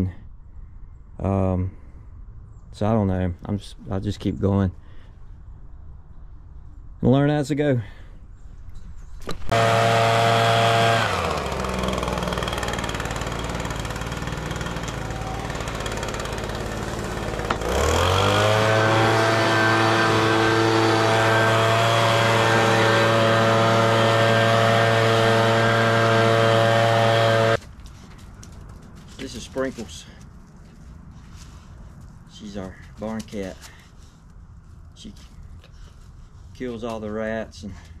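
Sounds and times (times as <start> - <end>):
leaf blower engine revving: 9.5 - 27.6.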